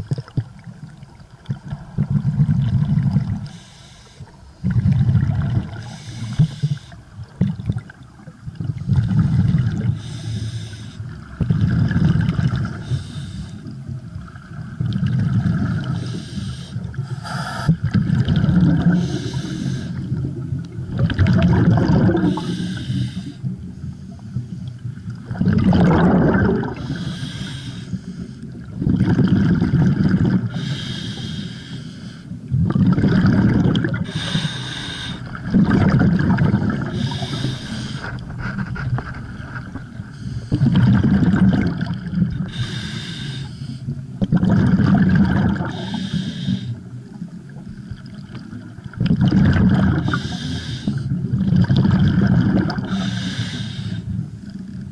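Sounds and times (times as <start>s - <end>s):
bubbling exhale: 2.0s - 7.9s, 14.8s - 23.5s, 25.2s - 46.9s, 49.0s - 54.2s
regulator inhale hissing: 3.4s - 4.6s, 5.8s - 7.1s, 10.0s - 11.1s, 12.7s - 13.8s, 15.9s - 17.8s, 18.9s - 20.2s, 22.2s - 24.8s, 26.8s - 28.6s, 30.5s - 32.4s, 34.0s - 35.5s, 36.8s - 38.6s, 40.0s - 40.8s, 42.4s - 44.0s, 45.7s - 46.9s, 50.0s - 51.2s, 52.9s - 54.2s.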